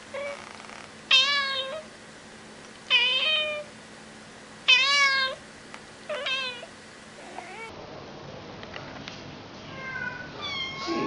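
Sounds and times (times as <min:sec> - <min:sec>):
cat meowing: 0:01.1 - 0:01.9, 0:04.7 - 0:05.4, 0:06.1 - 0:07.7, 0:09.7 - 0:11.0.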